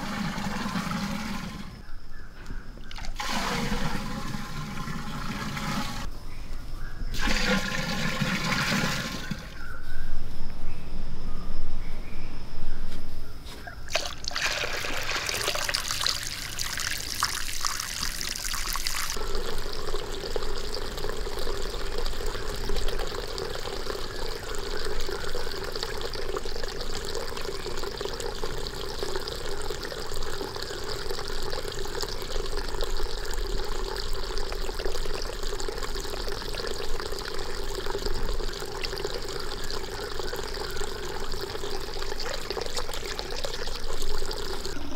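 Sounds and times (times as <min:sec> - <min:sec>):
water trickling into a bowl: 0:02.8 - 0:05.8, 0:13.9 - 0:44.9.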